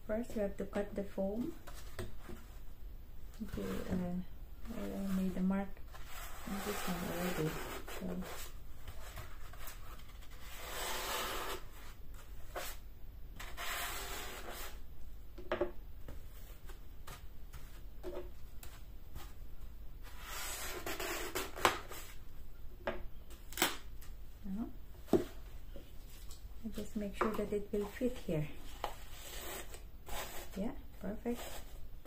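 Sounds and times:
knife rasping through floral foam: 3.5s - 9.7s, 13.4s - 14.8s, 28.7s - 31.8s.

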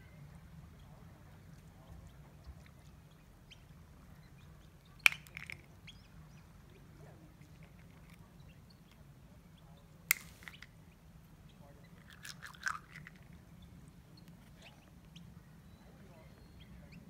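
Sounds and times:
faint low background noise: 0.0s - 17.0s
shell clicking against rock: 5.0s - 5.6s, 10.1s - 10.7s.

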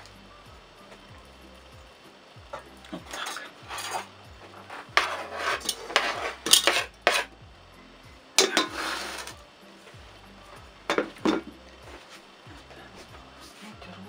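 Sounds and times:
knife and board clattering on pot: 5.0s - 7.3s.

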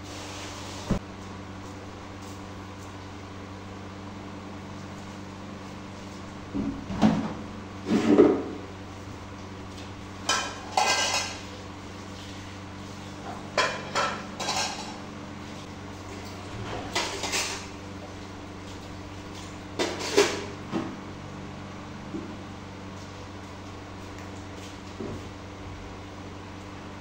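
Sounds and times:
dishes and cutlery clattering: 10.3s - 11.4s, 13.6s - 15.0s.

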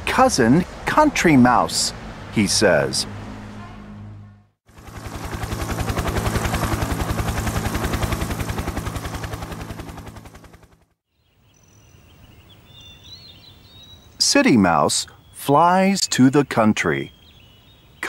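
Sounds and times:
helicopter rotor chop: 4.7s - 11.0s
birds chirping: 11.1s - 18.0s.

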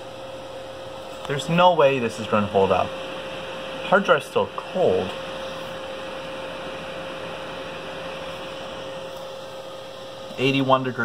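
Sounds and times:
computer fans whirring: 0.0s - 11.0s
constant hum tone: 0.0s - 11.0s.

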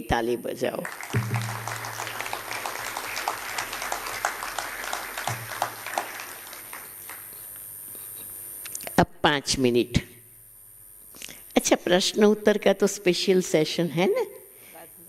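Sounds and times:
audience applauding: 0.8s - 7.5s.

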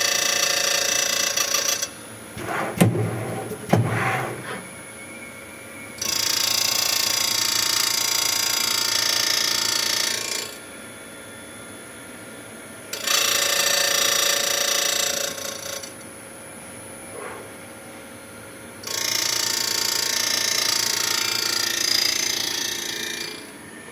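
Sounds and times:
machine running: 2.4s - 5.0s.

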